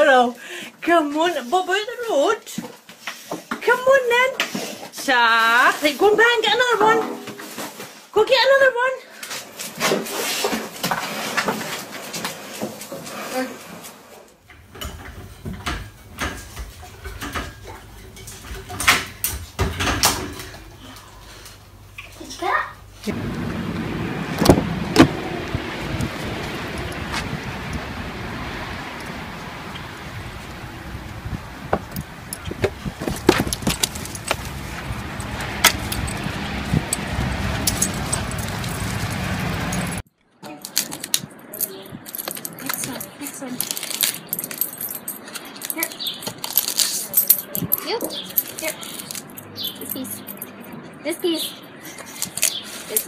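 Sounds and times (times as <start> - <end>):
pet gate rattling and clanking: 14.5 - 21.6
steady low rumble: 14.6 - 40.0
dog tags jingling: 31.7 - 40.0, 40.6 - 53.0.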